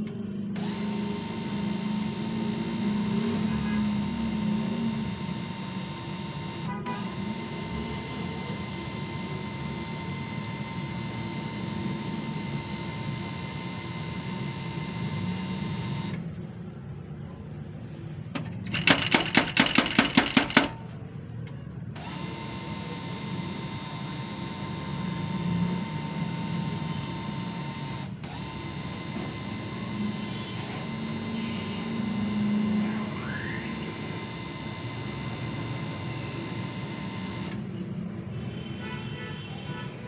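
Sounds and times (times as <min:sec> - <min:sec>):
laser printer humming: 0:00.0 - 0:16.3, 0:21.9 - 0:37.7
printer mechanism clicks: 0:18.4 - 0:22.4.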